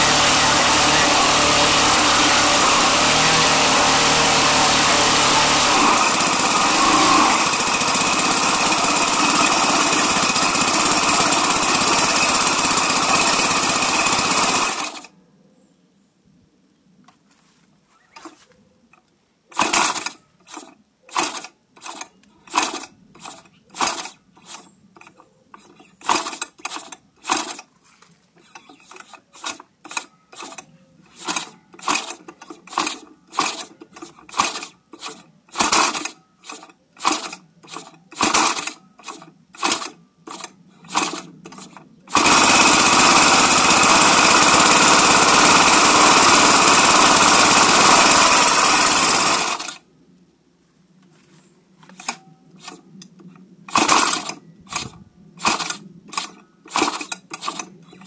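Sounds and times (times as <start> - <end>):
model engine running loudly: 0.0 - 15.0, 42.1 - 49.7
model engine turning over: 0.0 - 15.1, 19.5 - 27.7, 28.4 - 49.8, 52.0 - 52.8, 53.7 - 58.0.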